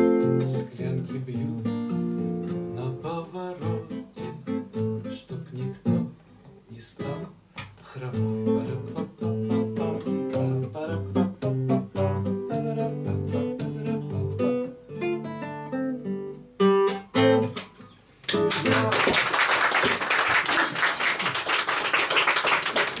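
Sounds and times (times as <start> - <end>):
classical guitar playing: 0.0 - 6.2, 8.1 - 18.9
people applauding: 18.3 - 23.0.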